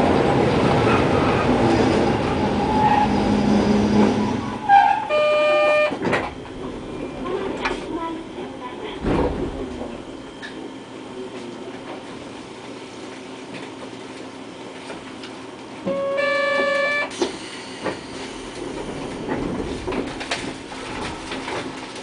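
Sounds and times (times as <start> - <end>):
streetcar rumbling on track: 0.0 - 22.0
loud single-pitched horn: 4.7 - 6.0, 15.9 - 17.1.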